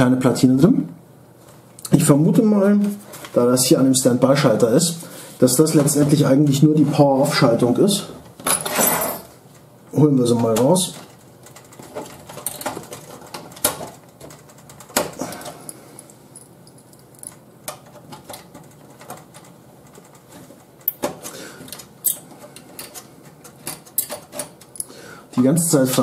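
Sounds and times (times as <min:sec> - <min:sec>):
screwdriver clicking and scraping metal: 0:21.7 - 0:24.9.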